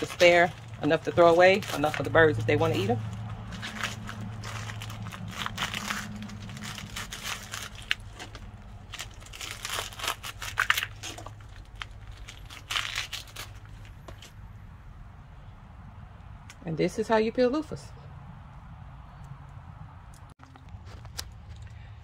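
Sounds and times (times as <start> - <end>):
wet loofah skin tearing: 3.1 - 14.0.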